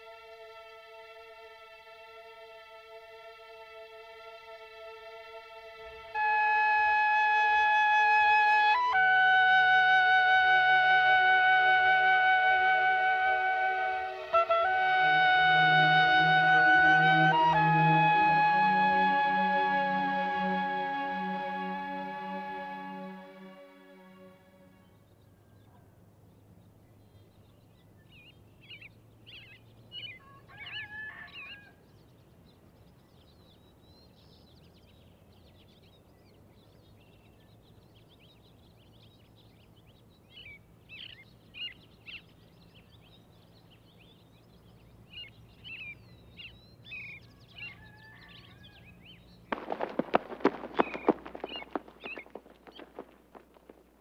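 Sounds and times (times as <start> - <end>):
songbirds chirping: 0.0 - 54.0
rapid loud sharp cracks: 49.5 - 54.0.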